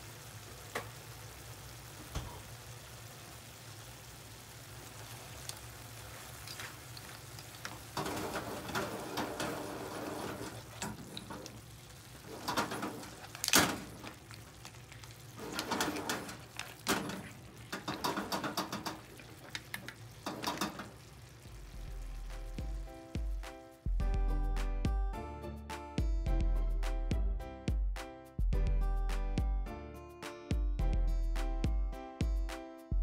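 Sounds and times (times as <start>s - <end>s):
bubbling sauce: 0.0s - 23.4s
wet stirring and sloshing: 6.4s - 22.6s
shells and tongs clacking on pan: 12.3s - 21.0s.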